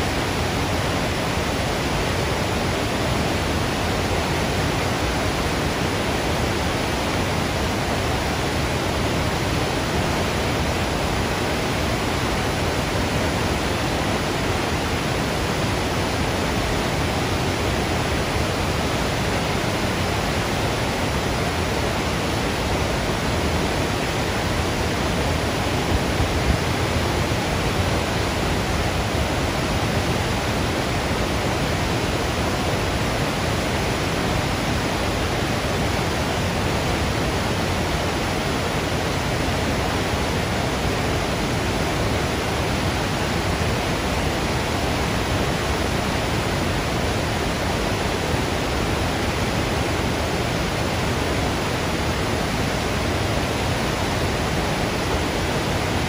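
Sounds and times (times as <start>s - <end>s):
rush of flowing water: 0.0s - 56.0s.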